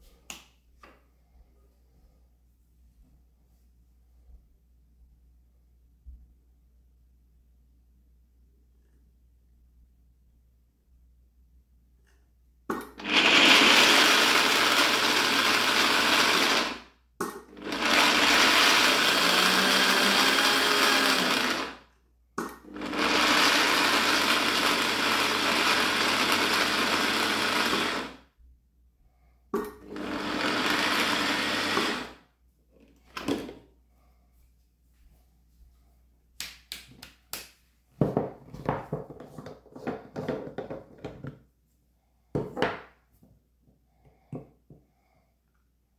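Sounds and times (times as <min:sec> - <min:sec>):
food processor motor running: 0:12.8 - 0:21.8, 0:22.6 - 0:28.2, 0:29.8 - 0:32.2.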